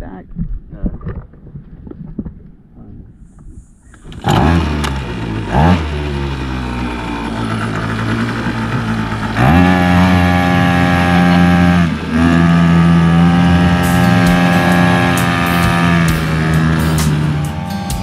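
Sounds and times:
outboard motor running: 3.8 - 18.0.

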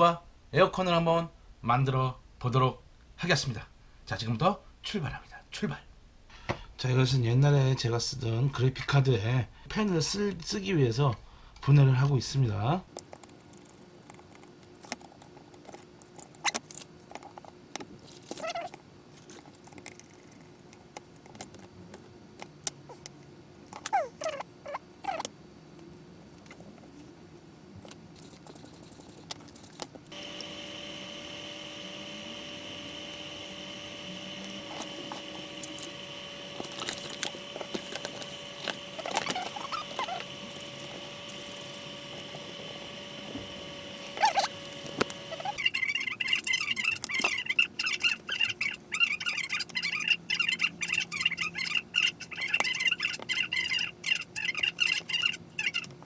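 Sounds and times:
hum with high whine: 25.5 - 47.1
short squeaks: 36.6 - 40.8.

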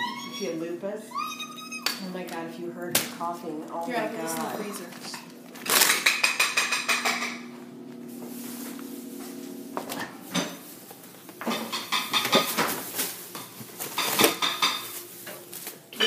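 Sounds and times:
low steady hum: 0.0 - 16.0
items clattering: 2.0 - 7.5, 9.8 - 16.0
items knocking and rattling in freezer: 2.1 - 7.5, 9.8 - 16.0.

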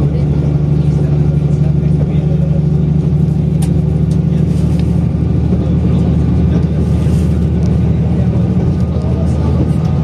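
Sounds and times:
low engine drone: 0.0 - 10.0.

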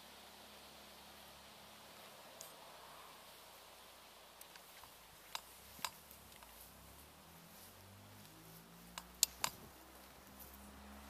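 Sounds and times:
faint steady hiss: 0.0 - 11.0
sharp clicks: 4.4 - 6.6, 8.9 - 9.8.

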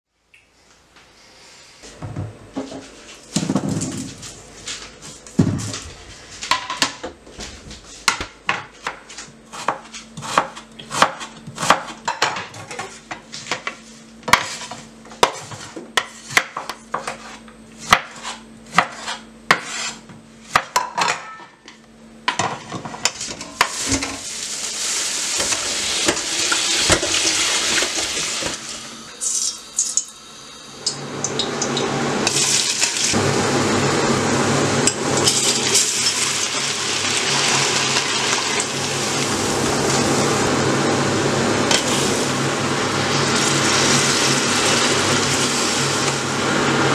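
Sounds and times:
knife chopping on wooden board: 8.1 - 12.6, 14.3 - 20.8
onions frying in hot oil: 23.6 - 33.2, 35.2 - 40.5, 41.6 - 46.6.

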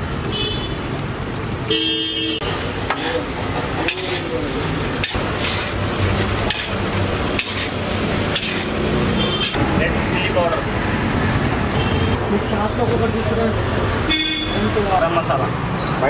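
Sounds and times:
street traffic noise: 0.0 - 16.0
vehicle horn honking: 0.3 - 0.8, 1.7 - 2.5, 9.1 - 9.6, 11.8 - 12.2, 14.1 - 14.7
metal spatula scraping a wok: 2.9 - 9.6.

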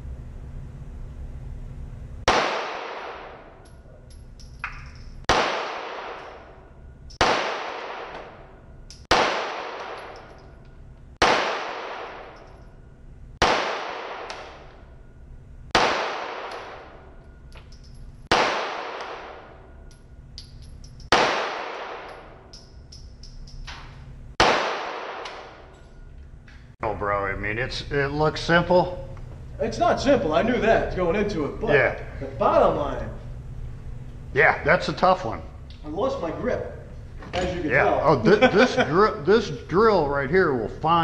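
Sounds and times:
handgun shots echoing indoors: 2.3 - 12.8, 13.4 - 15.1, 15.7 - 26.1.

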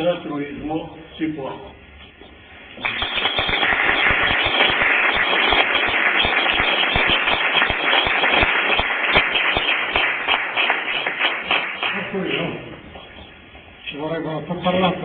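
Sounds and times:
audience applauding: 2.8 - 12.4.

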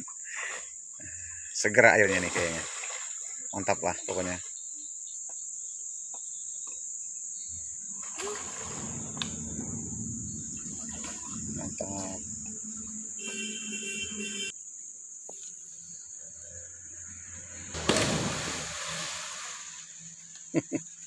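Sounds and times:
insects chorus: 0.0 - 21.0
water sloshing and splashing: 2.0 - 4.3, 7.9 - 14.0, 17.5 - 20.0.

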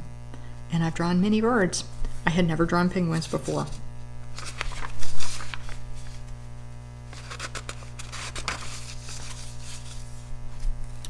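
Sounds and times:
low electrical hum: 0.0 - 11.0
paper page rustling: 3.0 - 6.4, 7.0 - 11.0.

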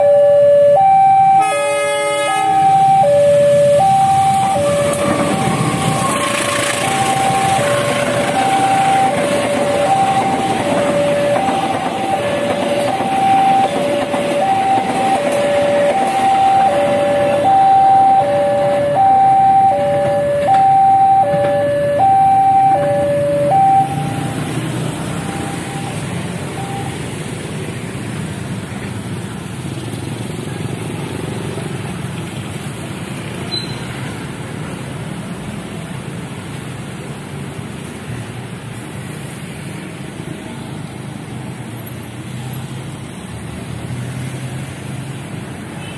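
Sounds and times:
two-tone crossing alarm chime: 0.0 - 27.0
road traffic: 0.0 - 45.9
train rumbling past: 1.4 - 29.8.

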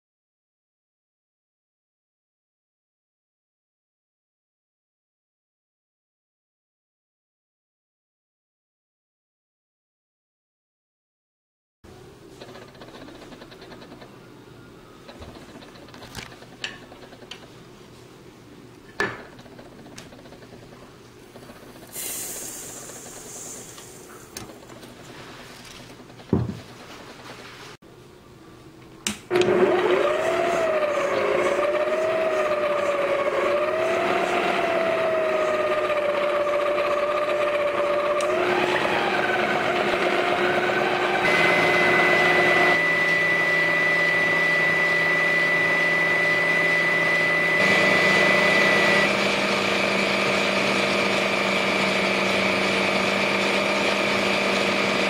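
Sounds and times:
stand mixer motor whining: 19.1 - 20.7, 21.3 - 24.8, 29.3 - 55.0.

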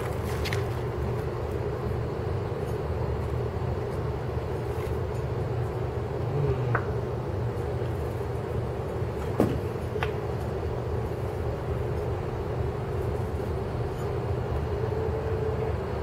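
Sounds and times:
low urban background rumble: 0.0 - 16.0.

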